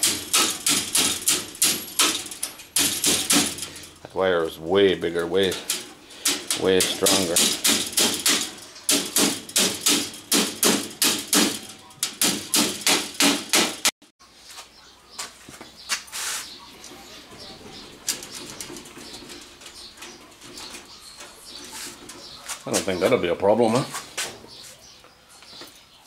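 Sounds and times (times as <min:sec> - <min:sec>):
hammer striking chain-link wire: 0:00.0 - 0:04.1, 0:05.2 - 0:13.9.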